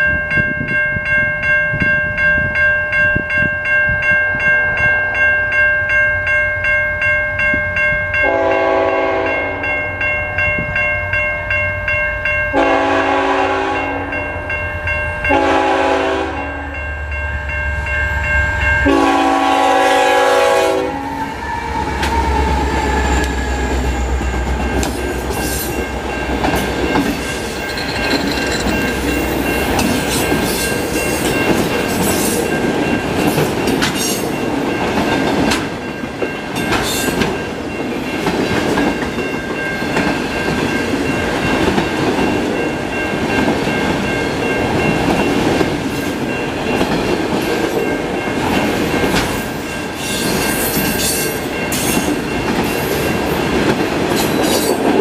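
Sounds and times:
crossing warning bell ringing: 0.0 - 55.0
locomotive horn blasts: 8.2 - 9.7, 12.5 - 14.2, 15.3 - 16.8, 18.8 - 21.4
train wheels clacking on rails: 18.6 - 55.0.

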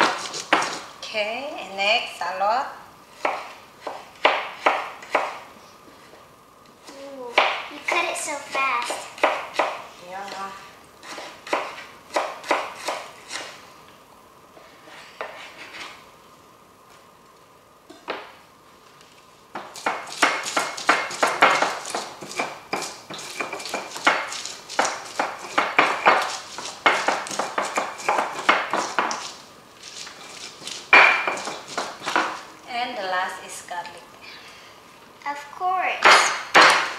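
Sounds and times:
knife chopping on cutting board: 0.0 - 0.9, 3.2 - 5.4, 7.3 - 8.1, 8.8 - 10.4, 11.0 - 13.6, 19.6 - 32.5, 36.0 - 36.9
stone pestle pounding in mortar: 19.6 - 29.4, 30.6 - 32.4, 36.0 - 36.9.

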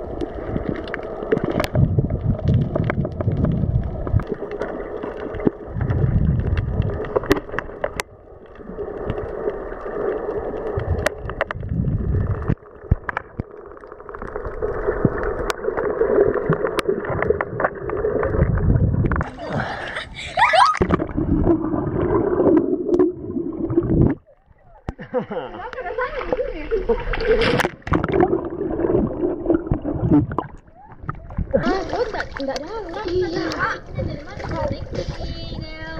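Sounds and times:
muffled underwater gurgling: 0.0 - 7.5, 10.2 - 12.6, 20.8 - 25.0, 27.8 - 35.9
splashing and bubbling: 0.0 - 25.1, 25.7 - 35.9
sharp underwater clicks: 0.2 - 9.5, 10.5 - 14.4.

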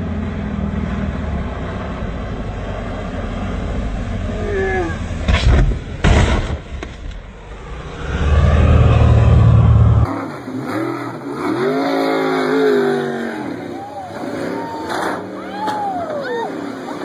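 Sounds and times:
speedboat engine drone: 0.0 - 6.0, 7.2 - 11.5, 12.1 - 17.0
race boat engine revving: 8.6 - 17.0.

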